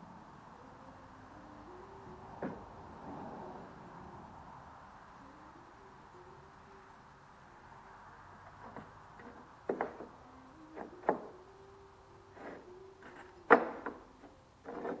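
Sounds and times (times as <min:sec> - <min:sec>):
wooden boards knocking: 0:09.7 - 0:10.1.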